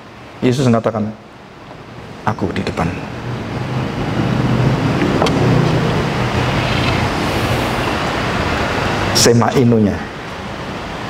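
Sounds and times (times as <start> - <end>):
vehicle engine rumble: 3.0 - 9.1
hiss: 6.4 - 8.7.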